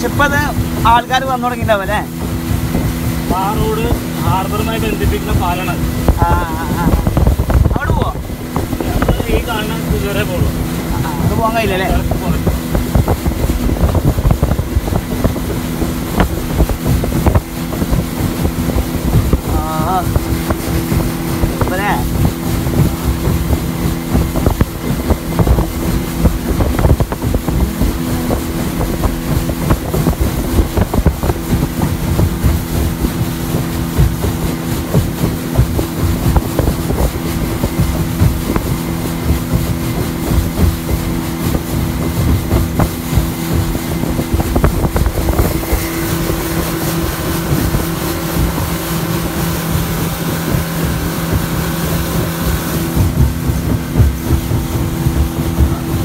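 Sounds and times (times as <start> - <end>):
hull thumping on waves: 0.0 - 56.0
speedboat engine: 0.0 - 56.0
wind buffeting microphone: 0.0 - 56.0.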